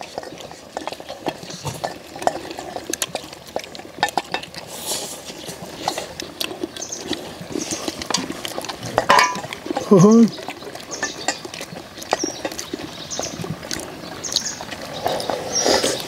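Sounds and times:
chewing: 0:00.0 - 0:16.0
slurping broth: 0:00.0 - 0:16.0
utensils clicking against steel bowls: 0:04.0 - 0:04.6, 0:08.0 - 0:10.2, 0:10.9 - 0:11.5.

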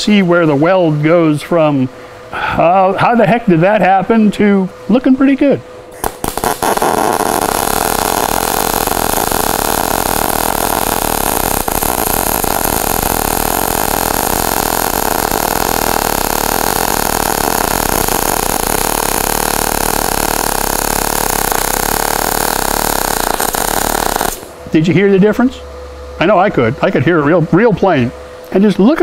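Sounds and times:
welding arc: 0:06.0 - 0:24.6.

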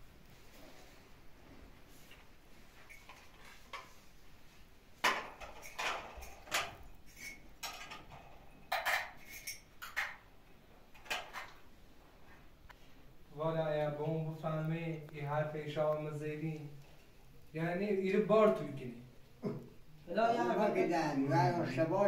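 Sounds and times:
cups and dishes clinking: 0:05.0 - 0:10.2.

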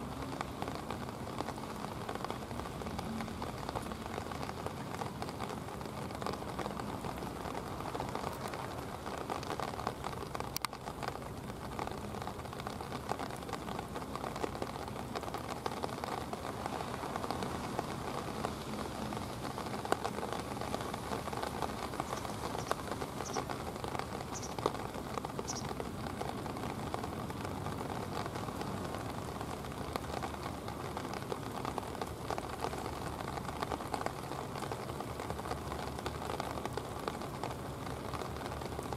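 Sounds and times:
rain pattering: 0:00.0 - 0:38.9
faint high chirps: 0:22.0 - 0:23.5, 0:24.3 - 0:24.6, 0:25.4 - 0:25.7.

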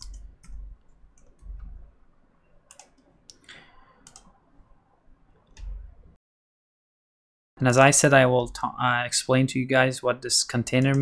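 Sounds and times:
keyboard keystrokes and mouse clicks: 0:00.0 - 0:04.4, 0:05.4 - 0:05.9, 0:10.7 - 0:11.0.

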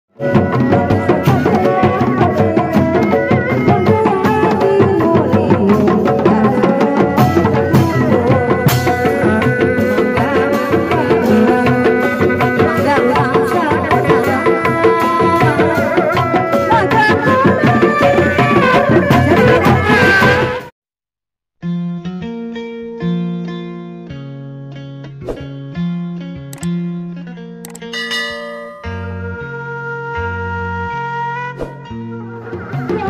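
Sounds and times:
sustained wavering melody: 0:27.9 - 0:31.0.

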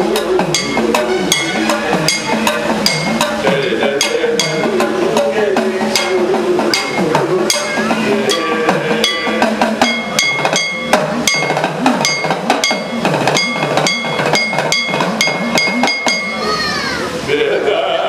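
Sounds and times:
man singing: 0:00.0 - 0:10.3
hourglass drum with gliding pitch: 0:00.0 - 0:17.1
small gong strikes ringing: 0:00.1 - 0:17.0.

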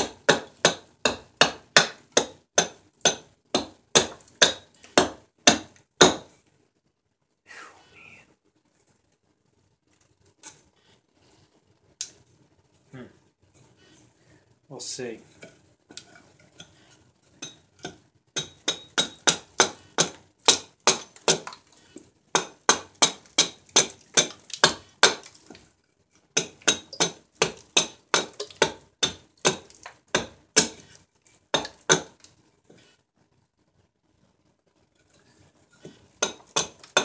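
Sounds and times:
hatchet chopping wood: 0:00.0 - 0:06.3, 0:17.8 - 0:21.6, 0:22.3 - 0:25.3, 0:26.4 - 0:30.9, 0:31.5 - 0:32.2, 0:35.8 - 0:37.0.

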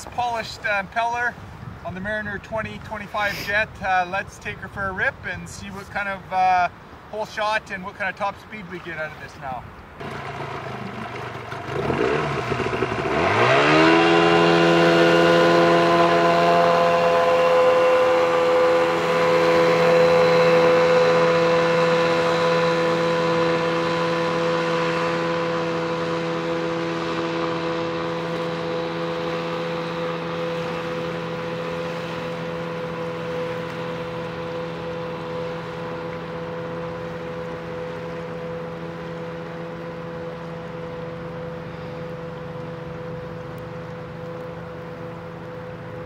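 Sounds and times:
outboard motor revving: 0:10.0 - 0:46.0.

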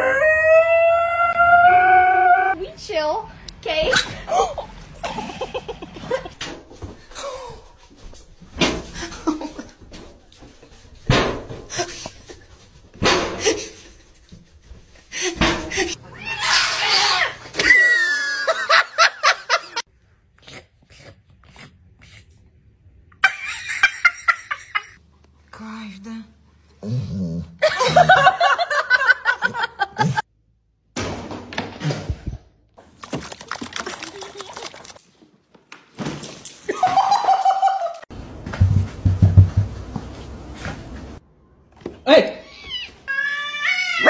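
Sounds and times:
person laughing: 0:04.3 - 0:06.4, 0:27.6 - 0:30.2
high-pitched laugh: 0:16.9 - 0:19.8, 0:36.7 - 0:38.0.

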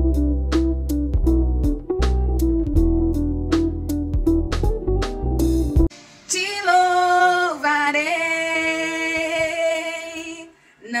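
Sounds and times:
woman singing: 0:06.3 - 0:11.0.

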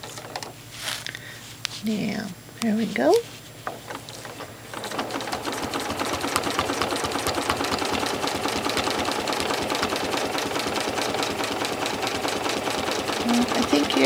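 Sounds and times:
sewing machine stitching: 0:00.0 - 0:00.5, 0:03.6 - 0:14.0.

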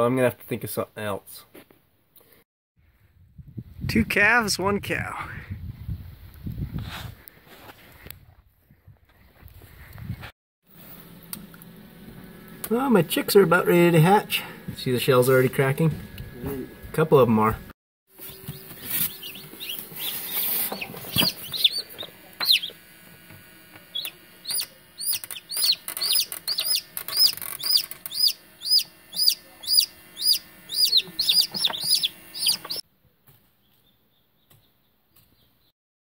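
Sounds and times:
chicks peeping: 0:18.2 - 0:22.8, 0:23.9 - 0:32.8.

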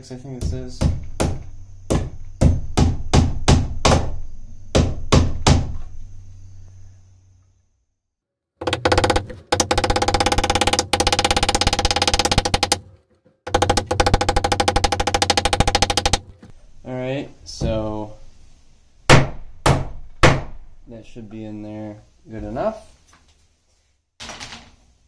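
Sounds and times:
fast rattle of clicks: 0:08.6 - 0:12.9, 0:13.5 - 0:16.4.

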